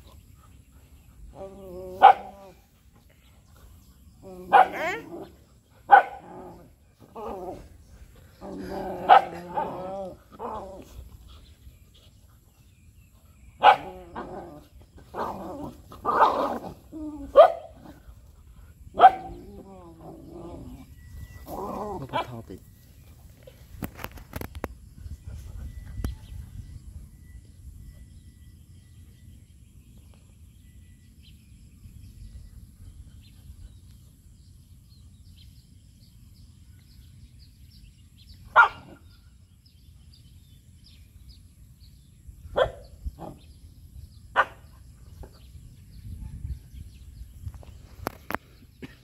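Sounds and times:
dog barking: 0:02.0 - 0:02.4, 0:04.5 - 0:05.1, 0:05.9 - 0:06.2, 0:09.1 - 0:09.8, 0:13.6 - 0:13.9, 0:17.3 - 0:17.8, 0:19.0 - 0:19.4, 0:38.5 - 0:39.0, 0:42.6 - 0:42.9, 0:44.4 - 0:44.6.

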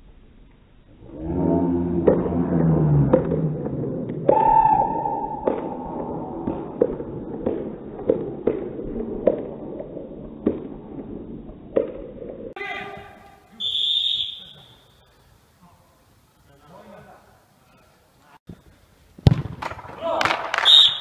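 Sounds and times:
held call: 0:12.6 - 0:15.1
football being kicked: 0:19.2 - 0:19.8.

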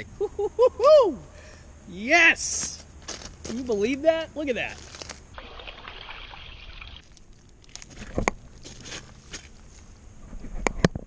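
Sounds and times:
water sloshing and splashing: 0:04.8 - 0:09.1.

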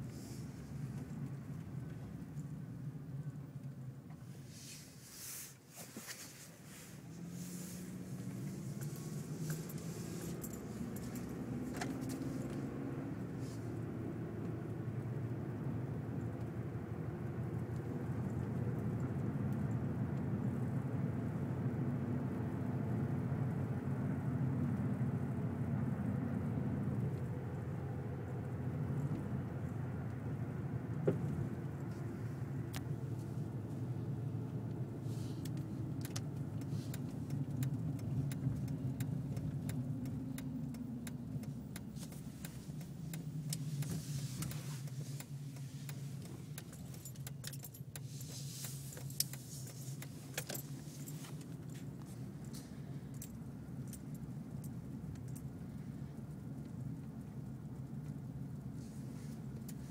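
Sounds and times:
car engine and tyre rumble: 0:00.0 - 0:59.9
light clicks and rattles: 0:31.0 - 0:59.9.

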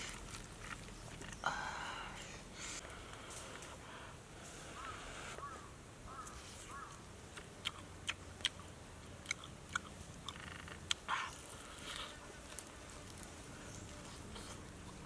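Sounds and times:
crunchy chewing: 0:00.0 - 0:01.6, 0:06.1 - 0:15.0.

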